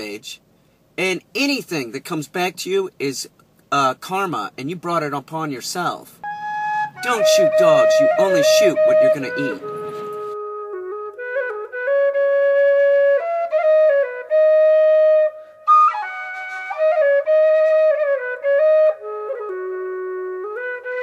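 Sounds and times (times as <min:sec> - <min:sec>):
solo flute melody: 0:06.2 - 0:21.0.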